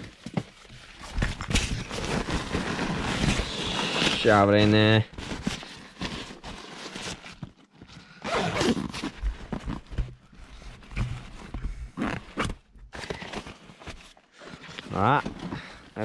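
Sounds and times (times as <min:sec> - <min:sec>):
backpack fabric rustling: 0:08.2 - 0:11.2.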